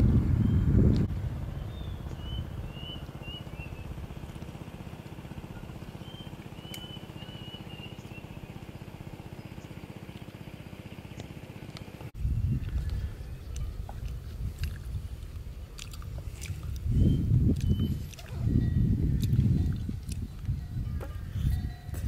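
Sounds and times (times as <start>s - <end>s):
distant motor drone: 0.0s - 22.0s
bird chirping: 1.6s - 4.0s, 5.5s - 9.8s, 16.8s - 19.3s
close-up eating sounds: 12.6s - 20.7s.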